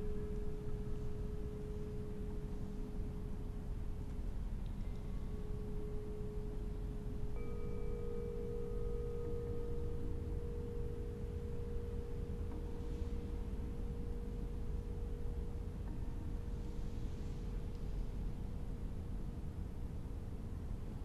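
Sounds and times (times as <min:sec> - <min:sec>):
steady pure tone: 0:00.0 - 0:21.0
low drone: 0:04.6 - 0:18.6.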